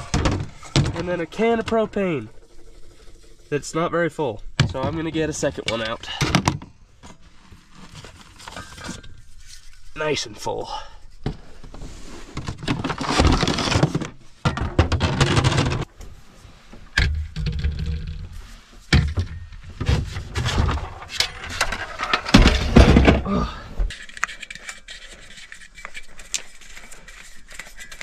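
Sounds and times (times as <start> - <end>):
scraping and rustling handling: 7.0 - 14.3, 15.0 - 23.2, 23.9 - 28.0.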